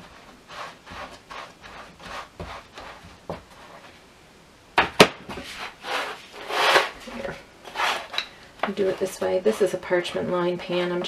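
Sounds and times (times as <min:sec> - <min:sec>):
hands rubbing pie dough: 0:00.0 - 0:04.0.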